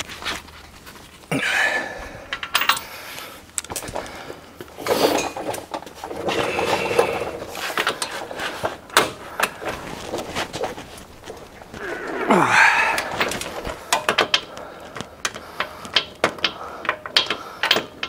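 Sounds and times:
metal hand tools clinking: 2.3s - 2.9s
ratcheting: 4.8s - 18.0s.

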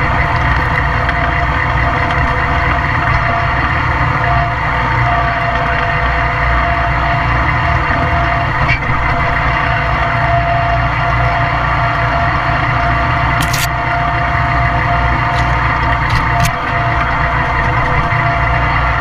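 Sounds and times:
lawn mower engine droning: 0.0s - 19.0s
branches scraping: 13.4s - 13.7s.

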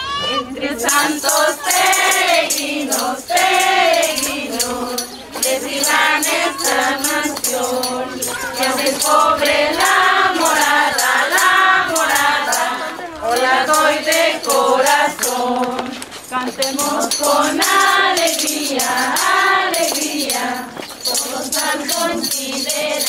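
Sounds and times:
women singing together: 0.3s - 23.0s
shaken jingling percussion: 0.5s - 23.0s.

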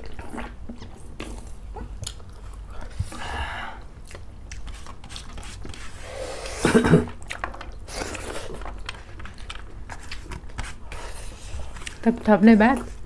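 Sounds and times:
chewing and lip-smacking: 0.0s - 3.1s, 4.0s - 5.4s, 7.1s - 10.6s.

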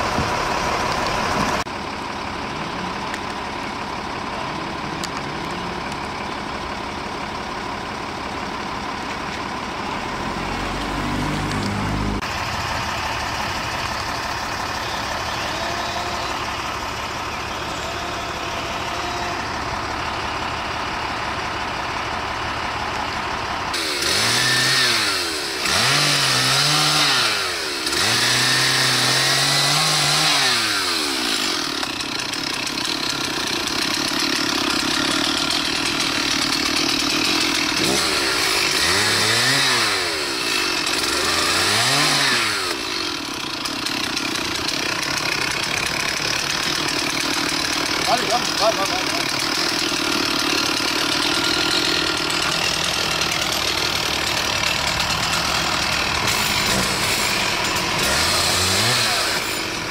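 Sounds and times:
small engine revving: 10.0s - 19.8s, 23.7s - 59.9s.

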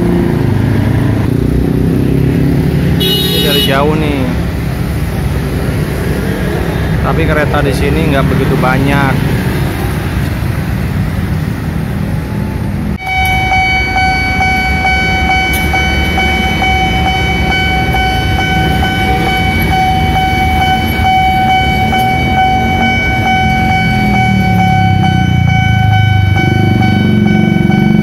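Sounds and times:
passing motorcycles and cars: 0.0s - 28.0s
level crossing alarm tone: 12.4s - 28.0s.

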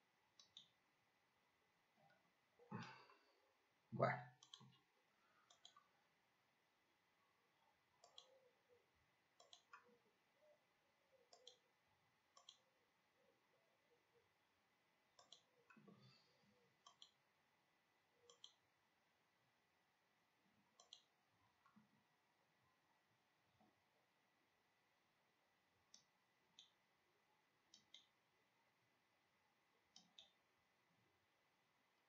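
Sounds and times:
computer mouse clicks: 0.4s - 0.8s, 4.3s - 4.8s, 5.4s - 5.9s, 8.0s - 8.5s, 9.4s - 10.0s, 11.2s - 11.7s, 12.3s - 12.7s, 15.1s - 16.0s, 16.8s - 17.2s, 18.2s - 18.6s, 20.7s - 21.9s, 25.9s - 26.8s, 27.7s - 28.2s, 29.9s - 30.4s.

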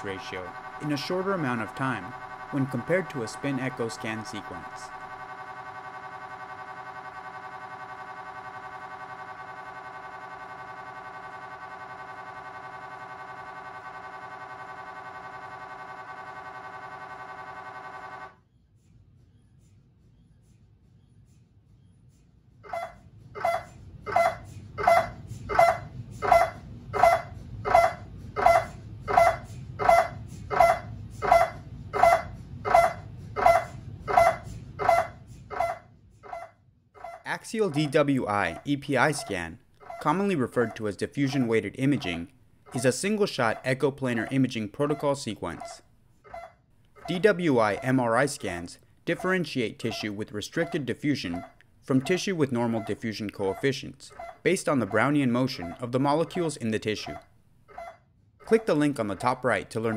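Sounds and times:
low steady hum: 0.0s - 18.4s
mri scanner pulses: 0.0s - 18.4s, 22.7s - 45.6s
mri scanner pulsing tone: 0.0s - 18.4s.

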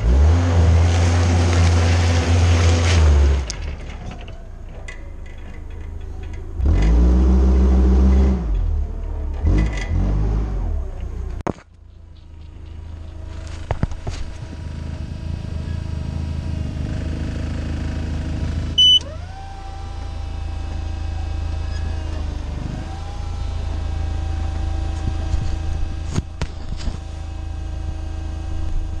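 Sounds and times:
forklift engine droning: 0.0s - 29.0s
short loud beep: 18.8s - 19.1s.

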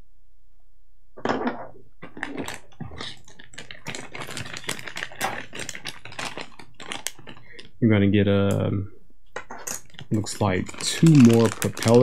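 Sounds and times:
plastic pouch crinkling and tearing: 2.0s - 7.8s, 9.6s - 12.0s.

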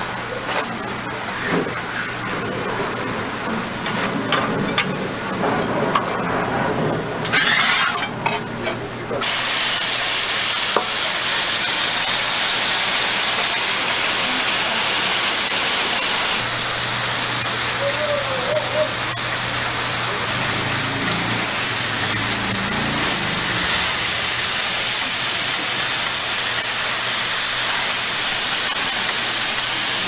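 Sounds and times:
rolls sizzling on a griddle: 6.7s - 8.4s, 9.2s - 30.0s.

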